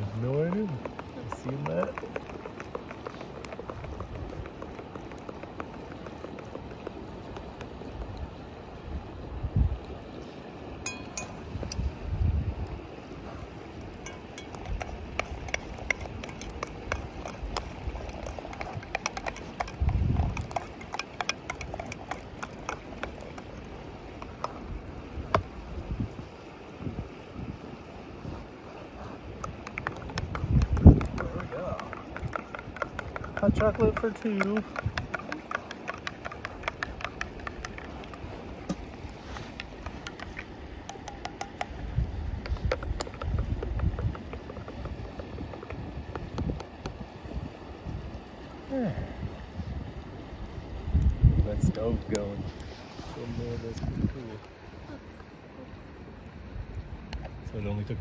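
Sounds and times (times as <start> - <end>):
wood fire crackling: 0.0 - 9.1, 12.6 - 25.8, 28.3 - 41.9
wind rumble on microphone: 0.0 - 10.0, 11.2 - 35.4, 36.6 - 55.0, 56.4 - 58.0.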